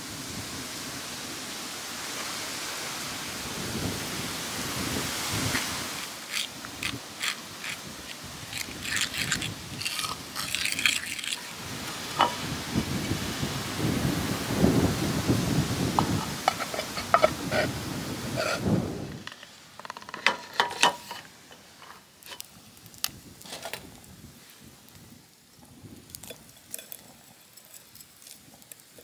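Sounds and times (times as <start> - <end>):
metal fork scraping earthenware dish: 6.3 - 11.5, 16.5 - 17.7, 18.4 - 18.6.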